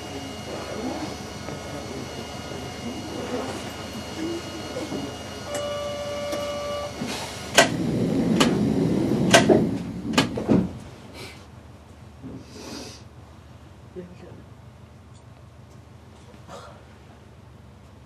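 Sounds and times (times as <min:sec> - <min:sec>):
steady electronic beep: 0:02.2 - 0:07.0.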